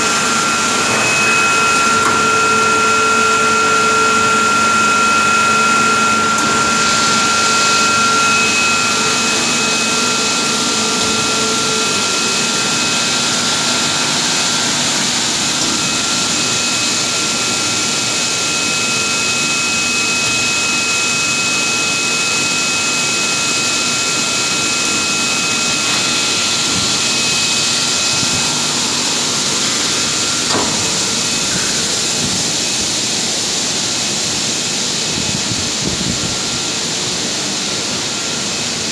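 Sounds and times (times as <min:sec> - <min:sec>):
high whine: 0:00.0 - 0:38.9.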